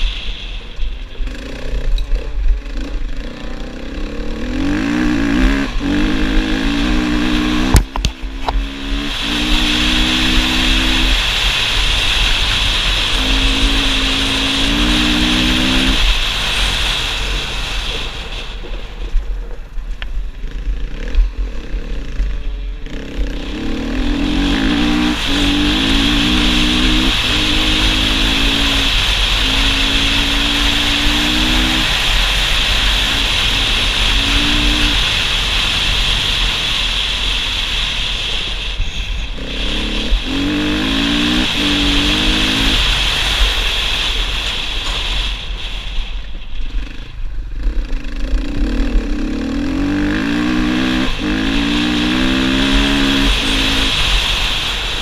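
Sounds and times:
heavy wind noise: 0:00.0 - 0:55.0
motorcycle engine shifting up: 0:00.6 - 0:16.9, 0:18.6 - 0:36.5.

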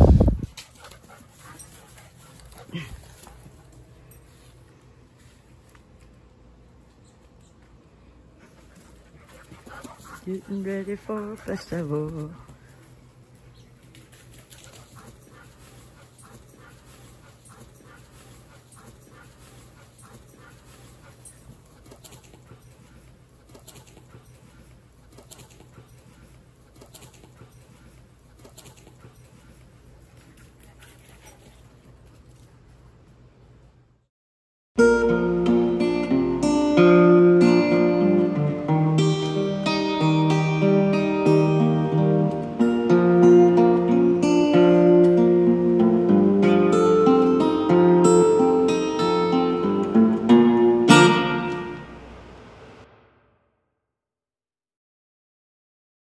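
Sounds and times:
dog panting and snuffling: 0:00.0 - 0:04.7, 0:08.4 - 0:32.5
steady low hum: 0:00.0 - 0:34.1
acoustic guitar picking: 0:34.8 - 0:52.2.

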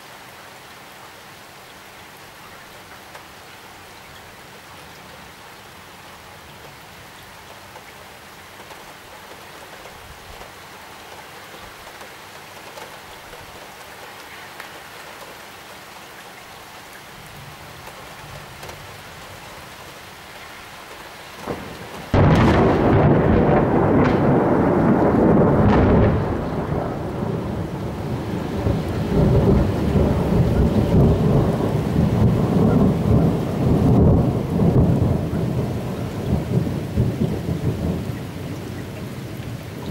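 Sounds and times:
steady rain: 0:00.0 - 0:39.9
rumbling thunder: 0:21.4 - 0:39.9.

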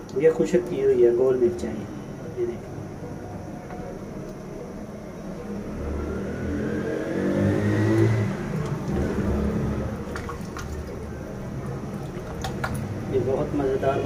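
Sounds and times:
vehicle engine accelerating past: 0:05.4 - 0:10.1.

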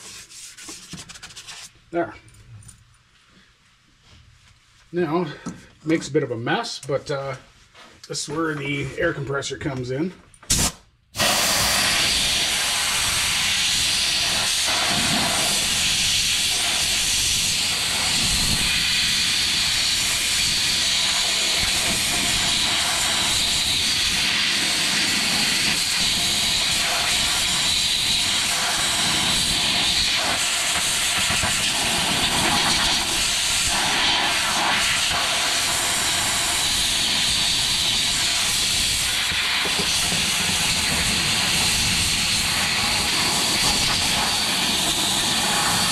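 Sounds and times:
compressed air hissing: 0:10.5 - 0:45.9.

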